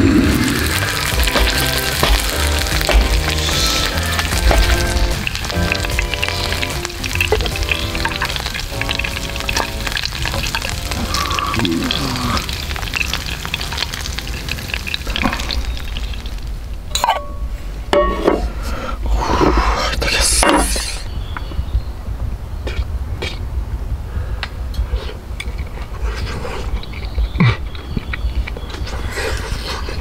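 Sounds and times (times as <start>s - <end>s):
chicken sizzling in hot oil: 0.0s - 16.7s.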